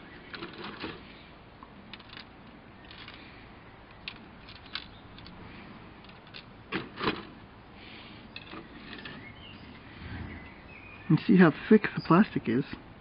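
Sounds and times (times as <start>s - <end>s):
plastic pieces clicking and rattling: 1.9s - 3.2s, 3.9s - 5.4s, 6.0s - 6.5s.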